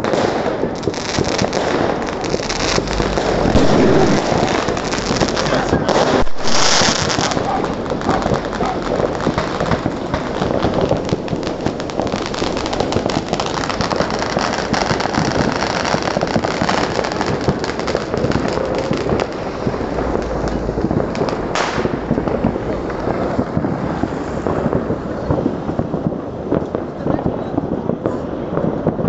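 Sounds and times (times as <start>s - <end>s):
fireworks crackling and popping: 0.0s - 29.0s
loud firework blast: 0.0s - 29.0s.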